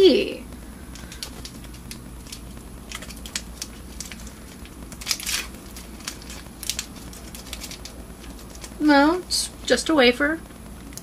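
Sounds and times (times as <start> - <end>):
wrapper crinkling: 0.8 - 8.9.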